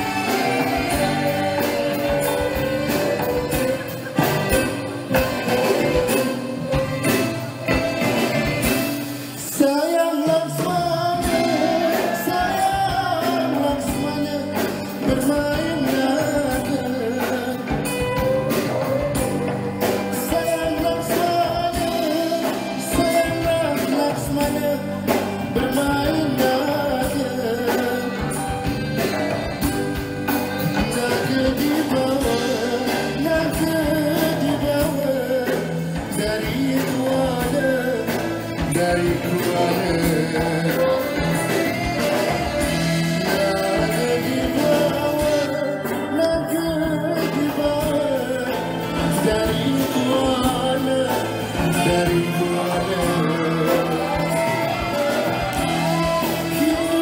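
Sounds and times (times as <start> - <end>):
live band playing: 0.0 - 57.0
man singing: 0.0 - 57.0.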